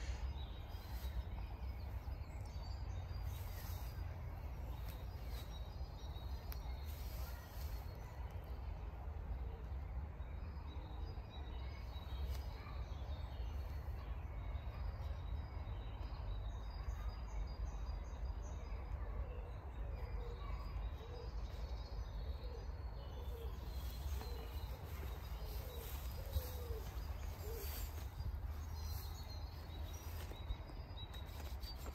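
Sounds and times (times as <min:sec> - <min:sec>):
low repeated bird calls: 0:22.0 - 0:31.9
birds calling: 0:22.4 - 0:31.9.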